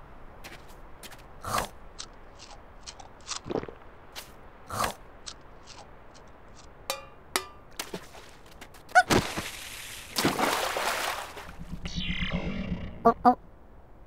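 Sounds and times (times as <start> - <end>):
squeaky blips: 11.6 - 13.4.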